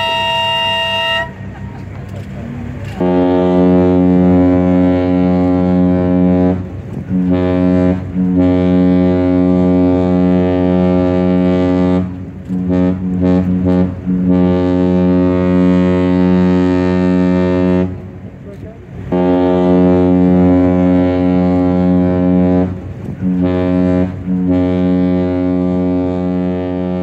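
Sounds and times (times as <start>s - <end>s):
deep ship's horn blasts: 0.0s - 1.6s, 2.6s - 27.0s.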